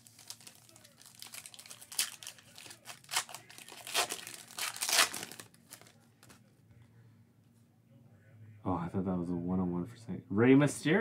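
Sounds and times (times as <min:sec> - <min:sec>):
foil wrapper crinkling and tearing: 0:00.0 - 0:06.4.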